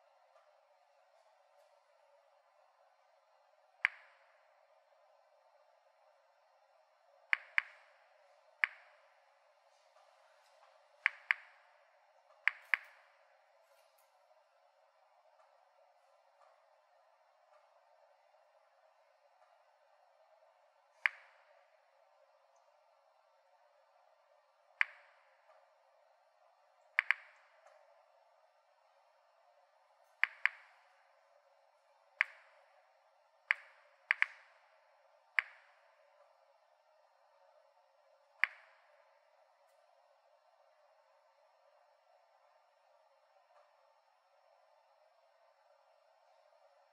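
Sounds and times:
geiger counter clicking: 0:03.7 - 0:06.4, 0:07.0 - 0:09.6, 0:10.5 - 0:13.6, 0:17.4 - 0:23.0, 0:24.5 - 0:28.2, 0:29.9 - 0:36.6, 0:38.2 - 0:39.9.

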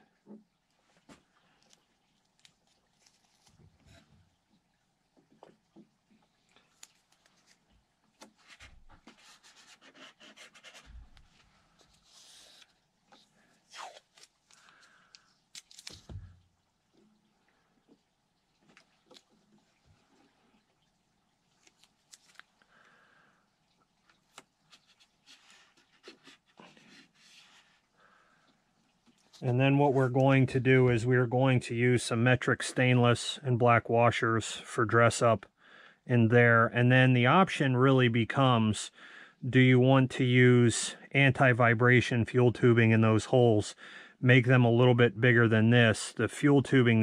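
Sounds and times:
rustling: 0:00.8 - 0:04.3, 0:06.6 - 0:16.4, 0:21.5 - 0:22.6, 0:24.0 - 0:27.8.

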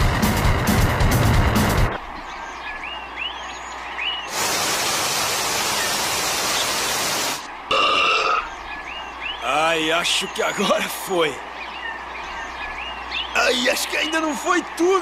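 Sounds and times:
loud music: 0:00.0 - 0:02.0
bird-like chirps: 0:02.0 - 0:04.4, 0:08.2 - 0:14.8
heavy rain hissing: 0:04.3 - 0:07.6.

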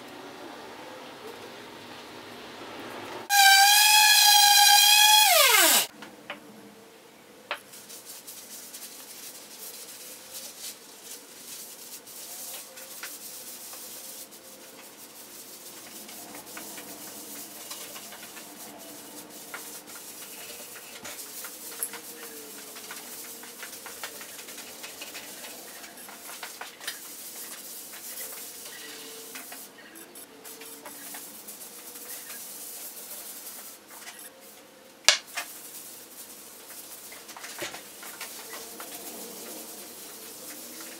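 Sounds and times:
cloth rag wiping wood: 0:07.7 - 0:29.8, 0:30.5 - 0:34.2, 0:35.4 - 0:40.9.

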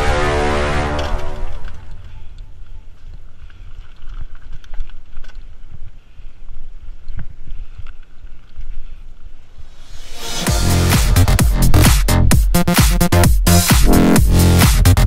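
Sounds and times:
mountain bike rattling over rocks: 0:01.1 - 0:09.0.

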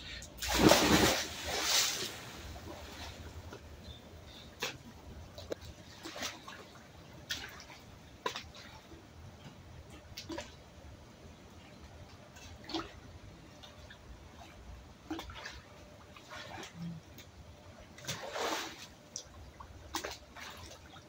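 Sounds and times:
pool water sloshing and splashing: 0:00.4 - 0:10.9, 0:12.1 - 0:21.0.

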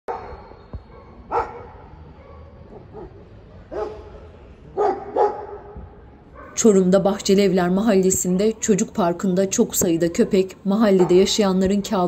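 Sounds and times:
dogs barking: 0:00.1 - 0:04.2, 0:04.8 - 0:05.8, 0:10.0 - 0:11.5.

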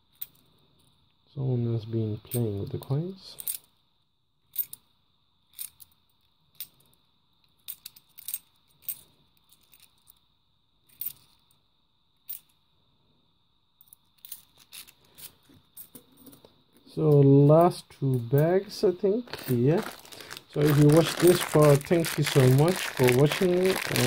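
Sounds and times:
coins clinking in the hand: 0:07.6 - 0:10.1, 0:19.3 - 0:24.0.

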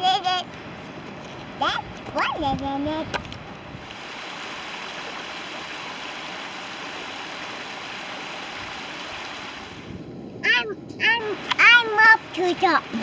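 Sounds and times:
creek water rushing: 0:03.5 - 0:13.0.

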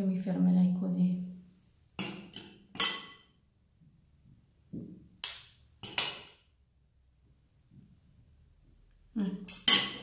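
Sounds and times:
metal spoons clinking: 0:02.0 - 0:03.3, 0:05.8 - 0:06.4, 0:09.5 - 0:10.0.

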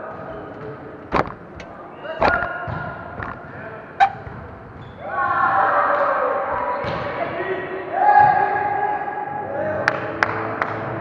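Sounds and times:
volleyball hand slaps: 0:01.1 - 0:03.4.

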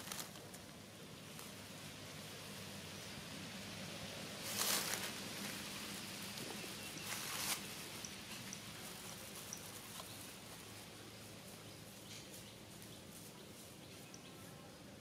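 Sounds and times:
brief rustle: 0:04.4 - 0:05.2, 0:06.4 - 0:07.7.

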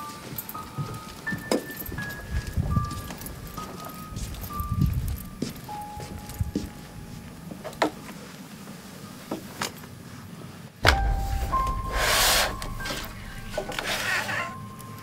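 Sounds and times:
loud low thud: 0:10.8 - 0:14.8
tense film score: 0:10.8 - 0:15.0.

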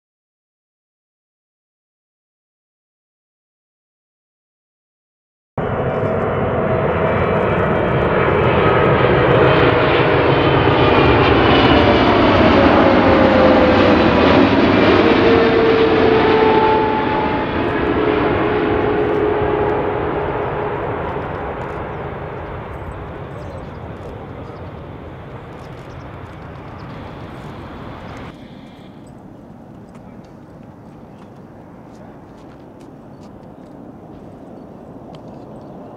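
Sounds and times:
whining engine tone: 0:05.6 - 0:29.2
jet roar passing: 0:05.6 - 0:35.9.

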